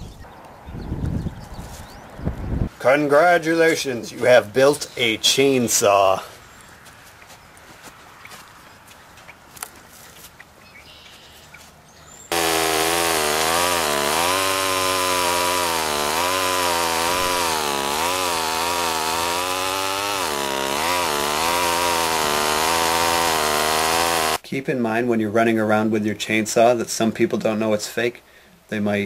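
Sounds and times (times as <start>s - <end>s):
chainsaw engine revving: 12.3s - 24.4s.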